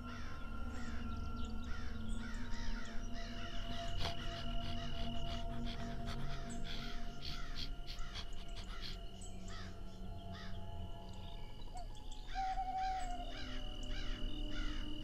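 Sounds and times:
hyenas yelping: 3.7s - 9.0s.

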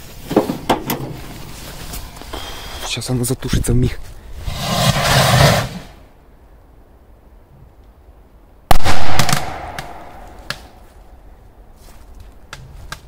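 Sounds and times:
hissing burst: 4.5s - 6.0s.

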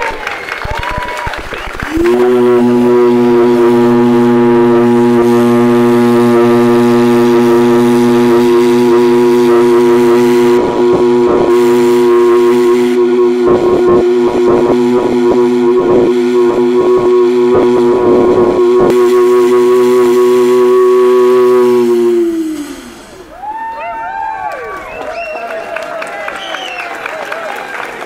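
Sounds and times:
steam hooter low note: 1.9s - 23.4s.

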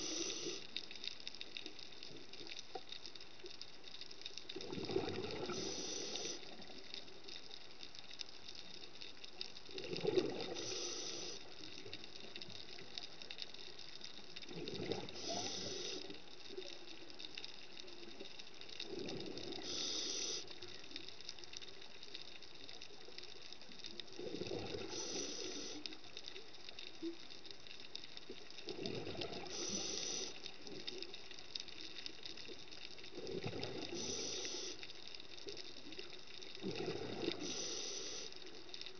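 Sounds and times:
regulator hiss: 0.0s - 0.9s, 5.4s - 6.7s, 10.5s - 12.0s, 15.1s - 16.3s, 19.5s - 21.0s, 24.8s - 26.2s, 29.4s - 31.0s, 33.8s - 35.4s, 37.2s - 38.8s
gurgling exhaled bubbles: 4.5s - 6.7s, 9.7s - 11.3s, 14.5s - 16.0s, 18.8s - 20.4s, 24.2s - 25.8s, 28.6s - 30.3s, 33.1s - 34.7s, 36.6s - 38.2s.

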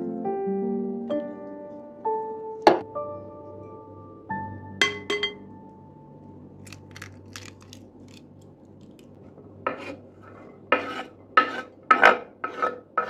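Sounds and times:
spatula scraping glass bowl: 9.7s - 13.0s.

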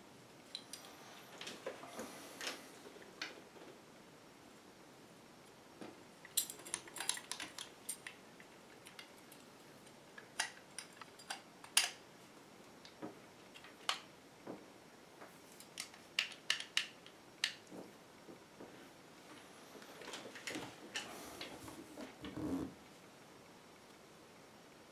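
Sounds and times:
small metal parts clicking: 6.3s - 9.4s, 10.2s - 12.0s.

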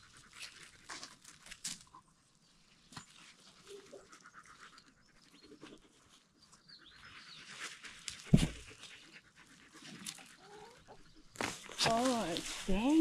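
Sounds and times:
dogs panting: 3.4s - 11.3s
deep thump: 8.3s - 8.6s.

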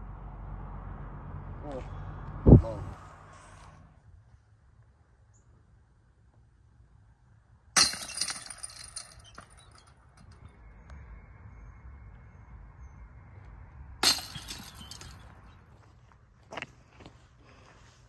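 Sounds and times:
discs hitting metal chains: 7.8s - 10.4s, 14.0s - 15.6s.

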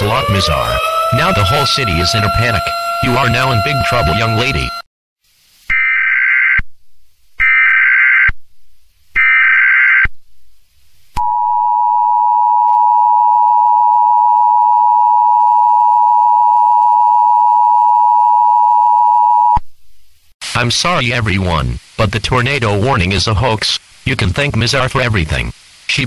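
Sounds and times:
harsh data bursts: 0.0s - 4.8s
steady two-tone alert signal: 0.0s - 4.8s.

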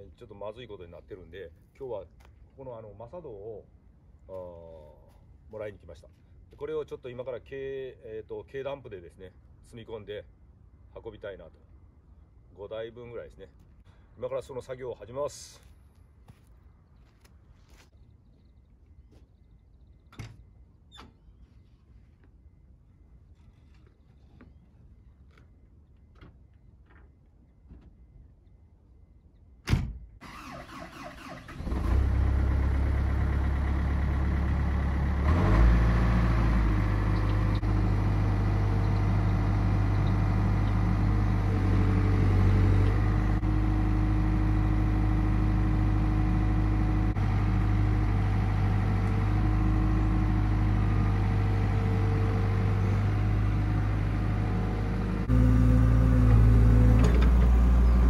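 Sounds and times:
diesel engine starting and running: 30.2s - 58.0s
higher engine tone: 31.2s - 58.0s.

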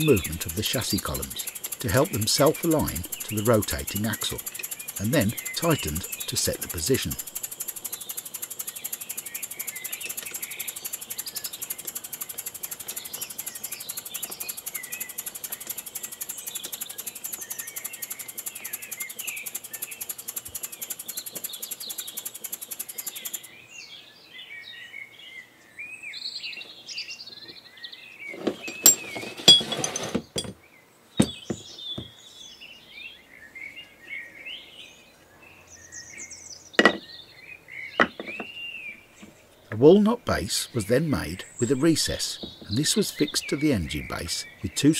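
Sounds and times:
model air engine ticking: 0.0s - 23.5s, 39.8s - 44.9s
birds chirping: 0.0s - 44.9s.

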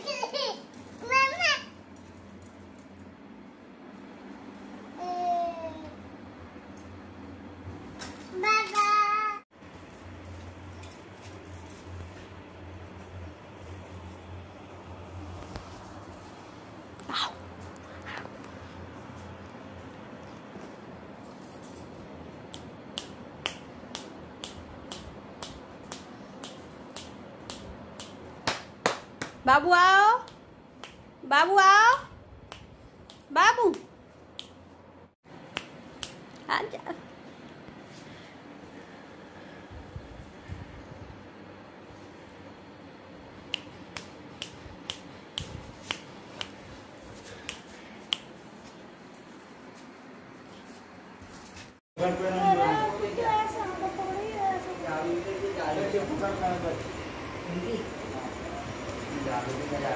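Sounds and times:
person making sharp clicks: 43.5s - 46.6s.

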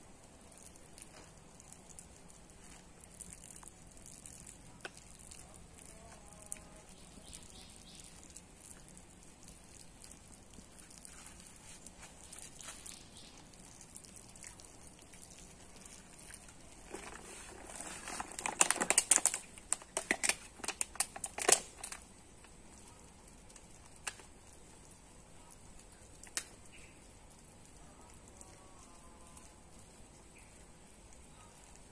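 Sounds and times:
plastic bottle crinkling: 0.4s - 22.1s.

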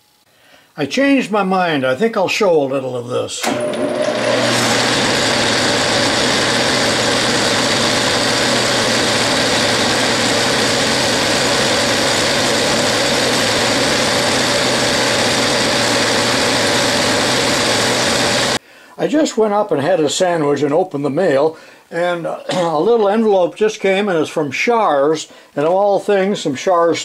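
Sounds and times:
metal lathe cutting steel: 3.4s - 18.6s.

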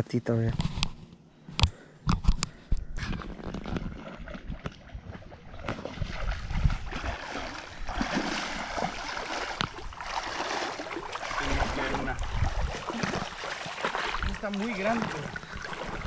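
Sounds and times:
wading through shallow water: 3.0s - 16.0s.

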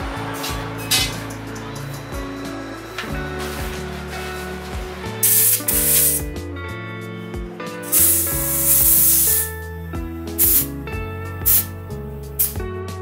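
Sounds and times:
background music sustained notes: 0.0s - 13.0s
air hissing from hand pump: 5.2s - 6.3s, 7.9s - 9.5s, 10.4s - 10.7s, 11.4s - 11.7s.

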